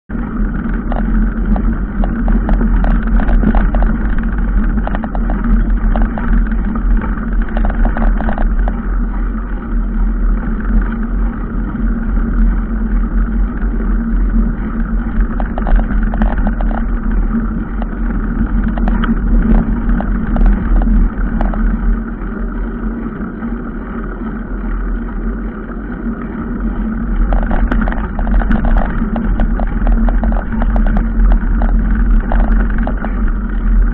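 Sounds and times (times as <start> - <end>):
vehicle engine humming: 0.1 - 33.9
small knocks and rattles: 0.4 - 9.0, 14.7 - 22.0, 27.2 - 33.9.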